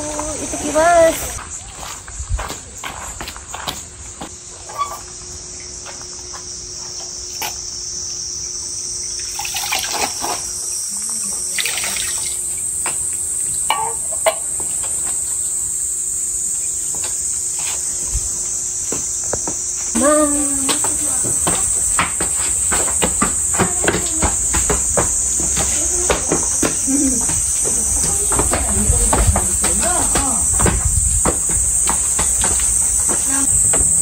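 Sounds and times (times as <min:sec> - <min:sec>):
high-pitched insect chorus: 0:00.0 - 0:34.0
water poured from ladle: 0:09.3 - 0:10.4.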